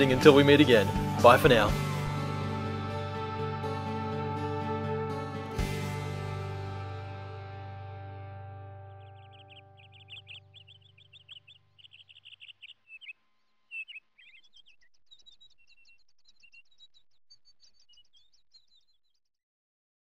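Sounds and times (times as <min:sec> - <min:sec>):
birds chirping and twittering: 0:08.7 - 0:19.4.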